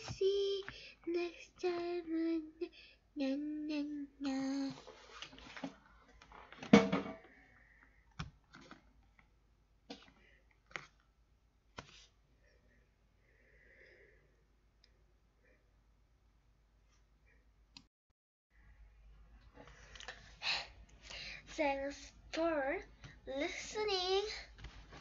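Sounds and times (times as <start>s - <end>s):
child singing: 0.0s - 4.9s, 21.5s - 24.5s
book handling clicks and taps: 8.1s - 9.3s, 9.9s - 11.1s, 11.8s - 12.1s.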